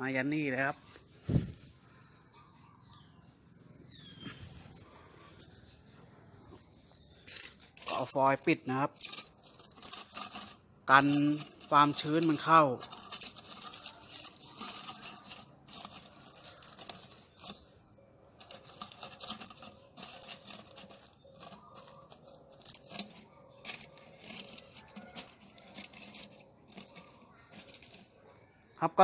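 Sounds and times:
aluminium foil crinkling: 7.2 - 17.8, 18.4 - 28.3.

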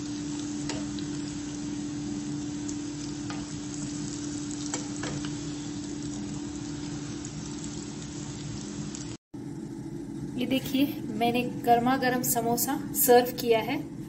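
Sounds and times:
food deep-frying in oil: 0.0 - 13.9.

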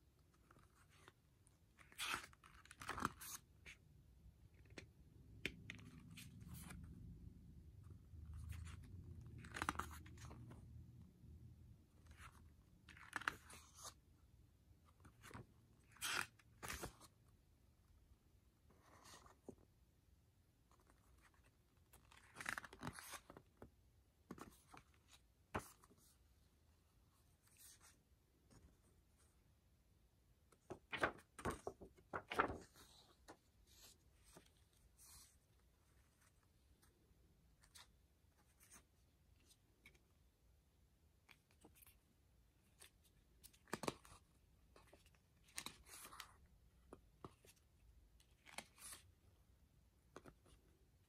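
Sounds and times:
paper pages flipping: 1.8 - 3.5, 8.3 - 10.6, 20.7 - 23.7, 30.5 - 36.9, 42.7 - 44.2, 44.8 - 46.4, 48.2 - 49.0
paper pages rustling: 30.5 - 36.9.

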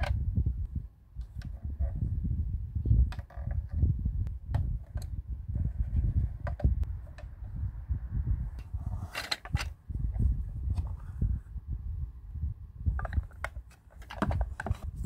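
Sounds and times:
low rumble: 3.9 - 13.0.

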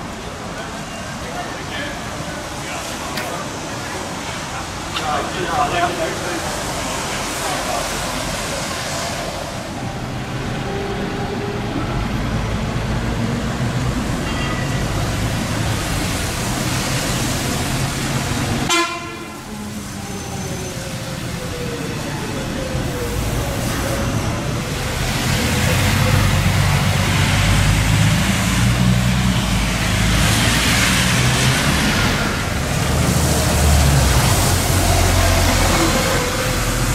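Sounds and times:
bus engine passing close: 0.0 - 36.9
bus engines and tyre noise: 0.0 - 36.9
bus horn toot: 18.7 - 19.5
tyre hiss on wet pavement: 24.7 - 36.9.

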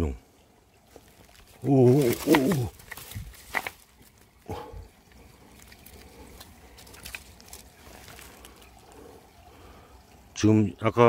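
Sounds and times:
stream water trickling: 0.0 - 11.0
hands rummaging through leaf litter: 0.9 - 4.4, 5.2 - 8.8
small clicks and rustles: 0.9 - 9.0.

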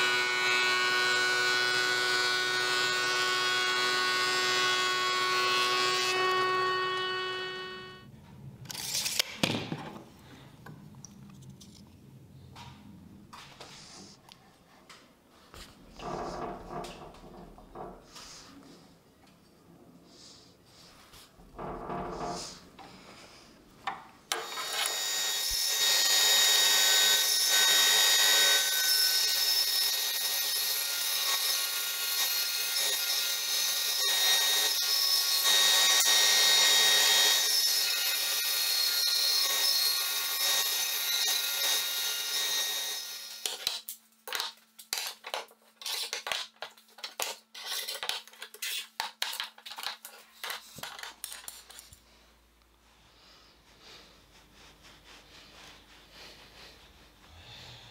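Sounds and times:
bandsaw cutting wood: 0.0 - 8.0, 24.3 - 43.8.

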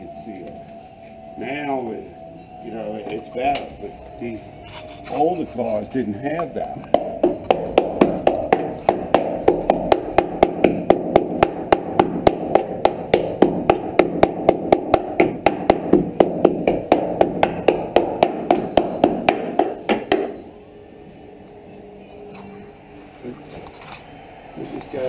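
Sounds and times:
hammer tapping on metal: 6.8 - 20.5.

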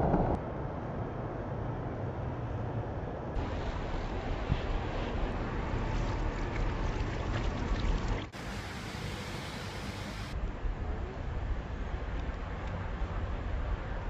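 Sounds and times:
heavy low rumble: 0.0 - 1.9.

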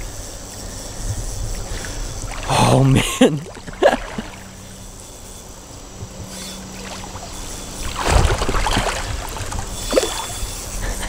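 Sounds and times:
water splashing and sloshing: 1.0 - 11.0.

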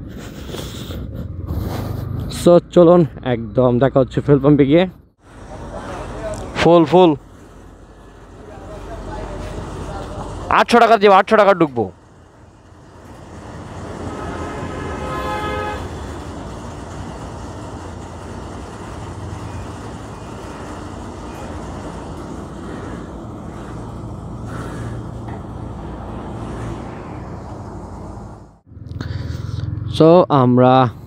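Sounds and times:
road traffic noise: 0.0 - 31.0
low hum: 11.9 - 29.9
vehicle horn: 13.8 - 16.1.

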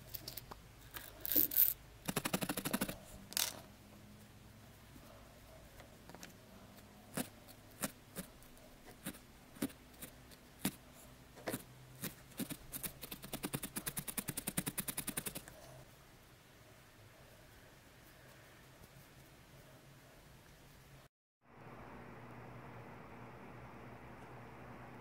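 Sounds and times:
felting needle clicking stabs: 11.5 - 15.5.

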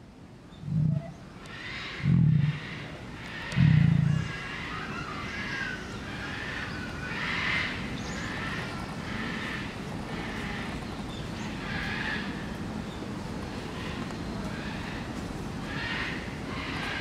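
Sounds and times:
bird calls: 0.5 - 9.5.

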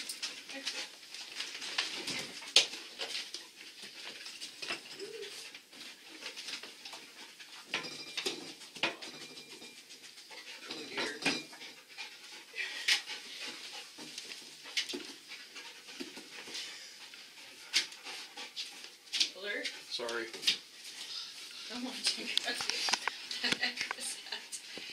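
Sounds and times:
knocks and rustles: 0.0 - 11.8, 12.8 - 20.7
dog panting and sniffing: 0.1 - 7.7, 9.6 - 24.9.

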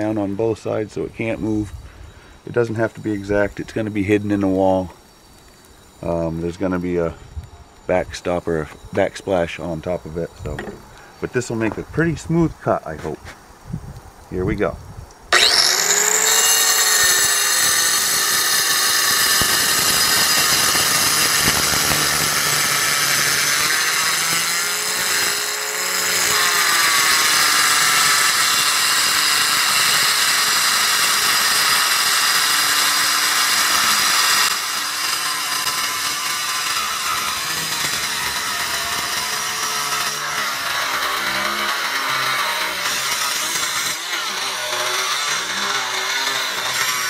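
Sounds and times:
wet tile saw cutting stone: 2.4 - 7.1, 15.3 - 47.0.

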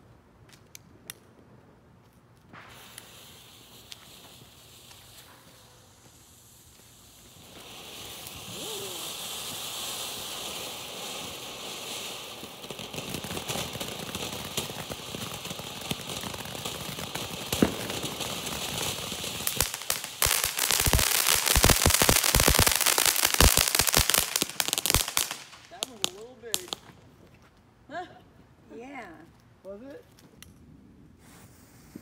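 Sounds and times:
firework crackling: 2.4 - 27.1
firework sparks hissing: 2.5 - 26.9.

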